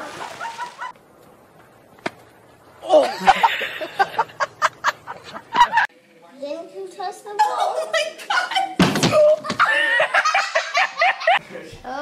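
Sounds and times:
water splash: 0:00.0 - 0:01.0.

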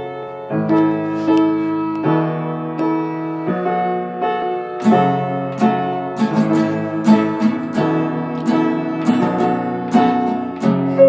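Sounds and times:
grand piano chords: 0:00.0 - 0:11.0
acoustic guitar strums: 0:04.8 - 0:11.0.

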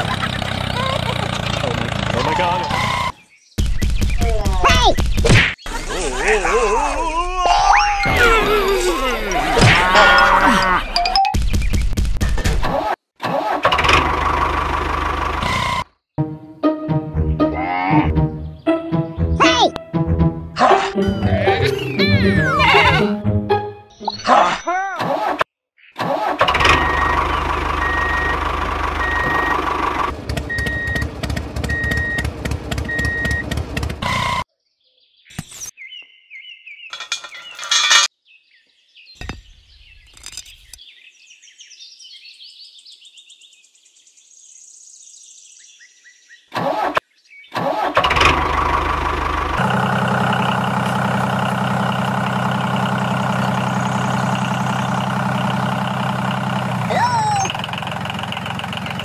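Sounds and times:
tiller engine running: 0:00.0 - 0:03.1, 0:13.6 - 0:15.8, 0:26.2 - 0:34.4, 0:47.6 - 0:59.0.

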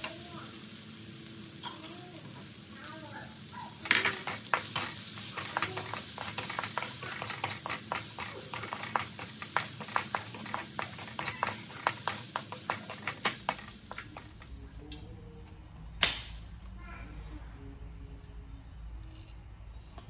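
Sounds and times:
hot oil sizzling: 0:00.0 - 0:14.6
spatula scraping metal wok: 0:03.8 - 0:14.1.

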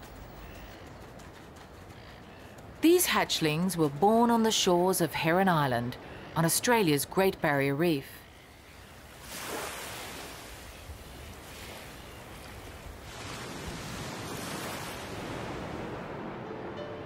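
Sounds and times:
surf washing up a beach: 0:09.2 - 0:17.0.

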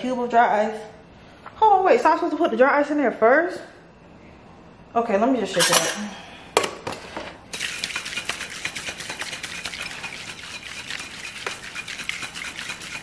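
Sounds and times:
cocktail shaker liquid sloshing: 0:07.5 - 0:13.0.

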